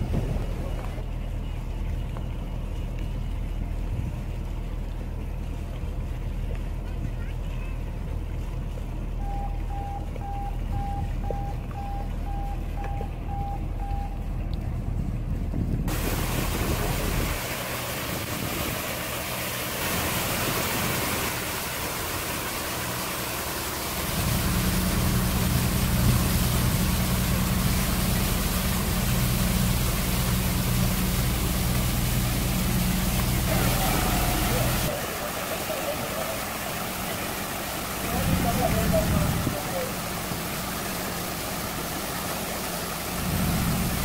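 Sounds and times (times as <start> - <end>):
boat engine humming: 0.0 - 44.0
evenly spaced beeps: 9.2 - 14.2
hiss of water spray: 15.9 - 44.0.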